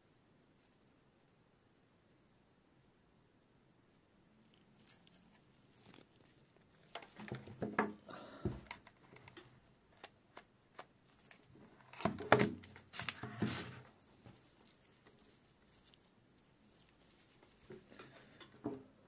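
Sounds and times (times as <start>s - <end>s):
gloved hands rustling cables: 4.3s - 18.7s.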